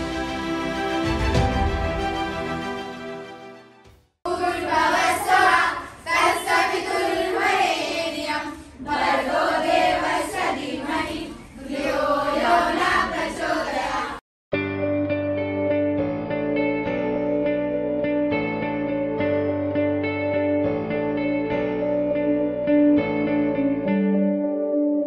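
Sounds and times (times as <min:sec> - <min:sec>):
intro music: 0:00.0 - 0:04.1
group singing in unison: 0:04.3 - 0:14.2.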